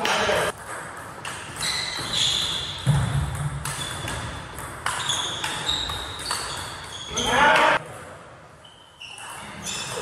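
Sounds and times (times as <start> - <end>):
distant ping pong hits: 0.0 - 7.8
table tennis ball hits: 0.0 - 7.8.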